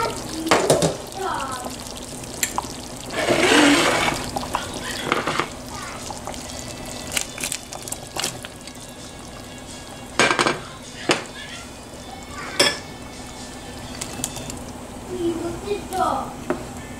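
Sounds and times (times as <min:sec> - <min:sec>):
potatoes plopping into stew: 0:00.0 - 0:09.4.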